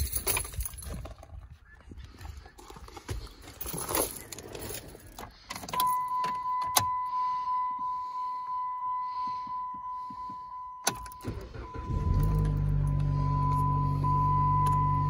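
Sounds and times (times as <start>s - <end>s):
keys jingling: 0.0s - 1.3s, 3.4s - 6.9s
dashboard warning chime beeping: 5.7s - 15.0s.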